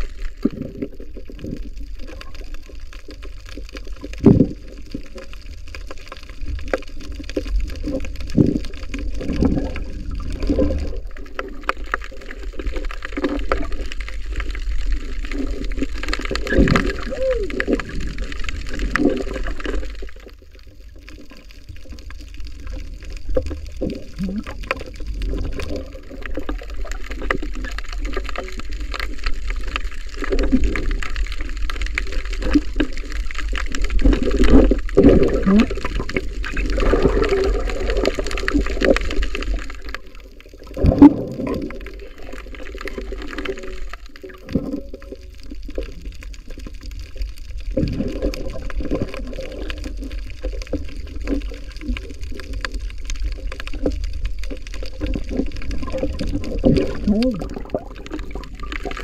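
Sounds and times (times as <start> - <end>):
muffled underwater water rushing: 0.0 - 59.0
low rumble: 23.3 - 24.7.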